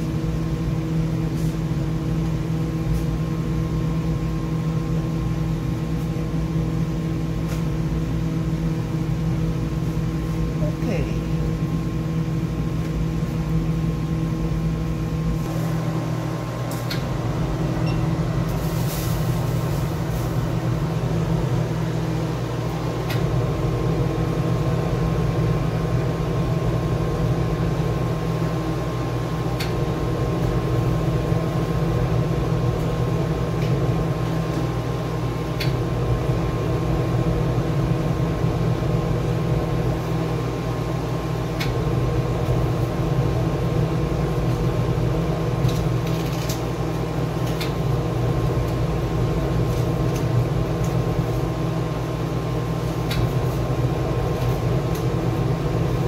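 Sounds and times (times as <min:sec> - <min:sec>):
oven mechanical hum: 0:00.0 - 0:56.0.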